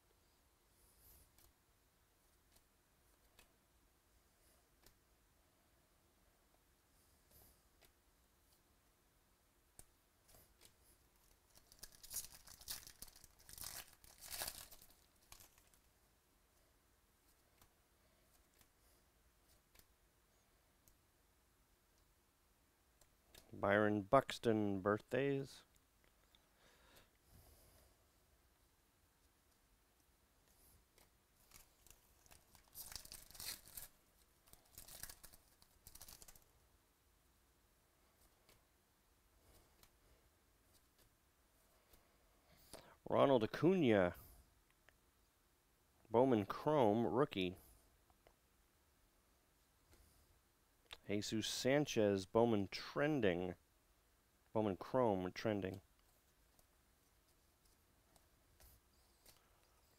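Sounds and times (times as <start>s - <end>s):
faint clicks of cards handled: 1.0s - 1.6s, 2.3s - 3.6s, 4.4s - 5.0s, 7.2s - 8.7s, 9.7s - 13.1s, 17.2s - 20.0s, 38.1s - 38.7s, 39.4s - 40.0s, 40.7s - 41.2s, 55.7s - 59.9s
foil wrapper tearing and crinkling: 11.5s - 15.8s, 31.4s - 36.4s.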